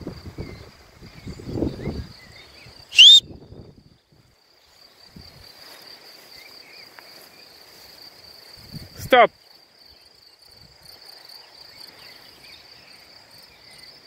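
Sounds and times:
wind rumble on microphone: 0:00.0 - 0:04.4, 0:05.1 - 0:05.5, 0:08.6 - 0:09.1
insects chirring: 0:00.0 - 0:14.0
loud rising whistle: 0:03.0 - 0:03.3.

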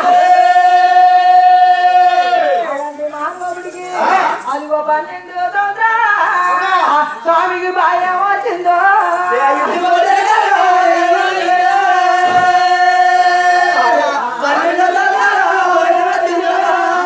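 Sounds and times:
group of men singing: 0:00.0 - 0:02.8, 0:03.7 - 0:04.5, 0:09.0 - 0:17.0.

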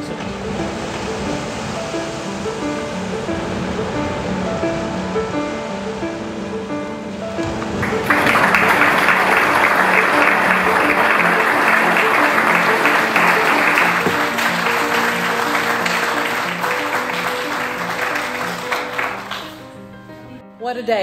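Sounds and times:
soft background music: 0:00.0 - 0:21.0
audience applauding: 0:07.6 - 0:19.8.

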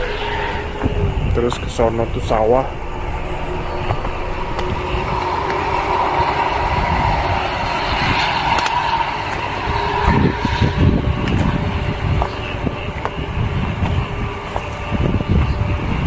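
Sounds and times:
passing vehicles rumbling: 0:00.0 - 0:16.0
footsteps on ballast stones: 0:12.2 - 0:14.8.

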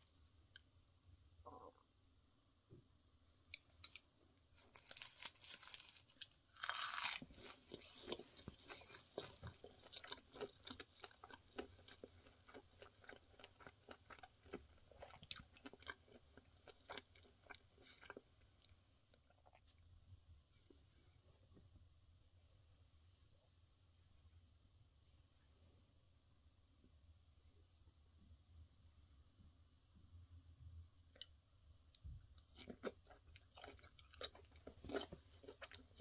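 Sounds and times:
crunching bite: 0:04.6 - 0:18.2
chewing with mouth clicks: 0:07.0 - 0:19.8, 0:31.9 - 0:36.0.

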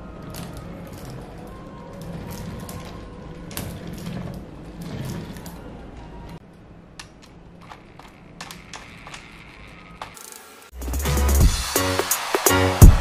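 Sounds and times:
quiet background music: 0:00.0 - 0:07.6
plastic toy clicks and ratcheting: 0:07.6 - 0:10.8.

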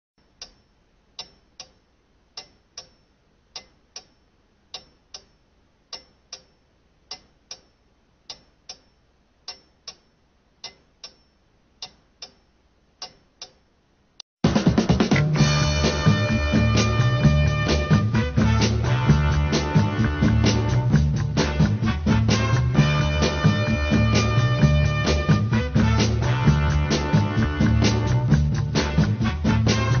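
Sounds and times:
clock ticking: 0:00.2 - 0:14.2.

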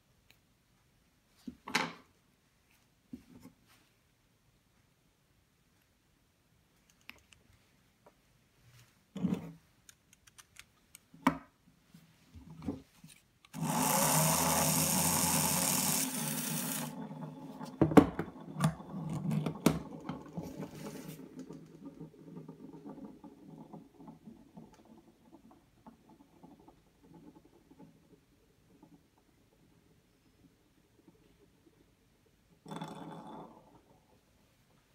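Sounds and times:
spinning top rattling whirr: 0:13.5 - 0:32.7
electric motor whining: 0:13.6 - 0:17.0
top knocking on wooden table: 0:17.7 - 0:18.8.

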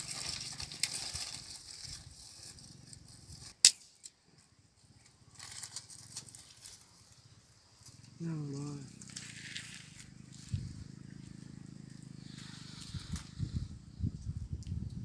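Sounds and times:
dry sticks rustling and snapping: 0:00.0 - 0:04.2
sharp loud stick crack: 0:03.6 - 0:04.2.

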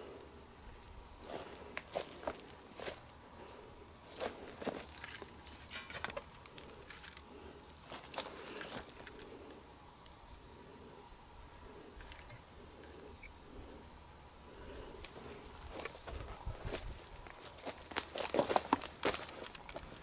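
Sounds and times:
insect chirps: 0:00.0 - 0:20.0
insects humming: 0:00.0 - 0:20.0
footsteps on dry leaves: 0:15.7 - 0:20.0.

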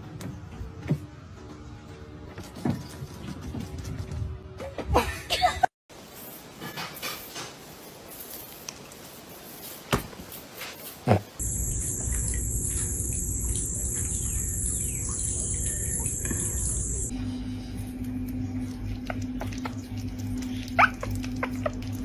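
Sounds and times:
birds chirping: 0:11.4 - 0:17.1
insects buzzing: 0:11.4 - 0:17.1.

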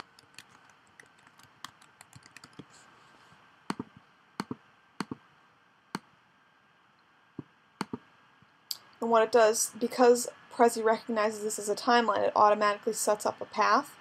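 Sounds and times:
typing on computer keyboard: 0:00.0 - 0:02.7.

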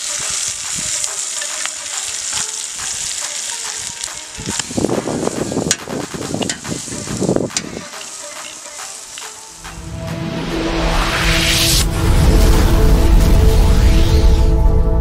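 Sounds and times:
bacon sizzling on griddle: 0:00.0 - 0:09.7
tongs clicking: 0:05.7 - 0:09.4.

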